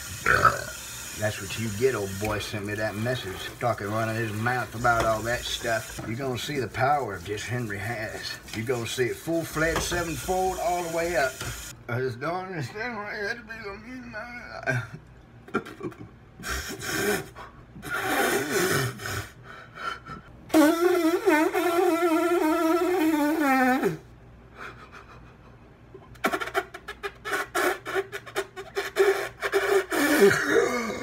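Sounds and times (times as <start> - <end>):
man sobbing and wailing: 30.0 - 31.0.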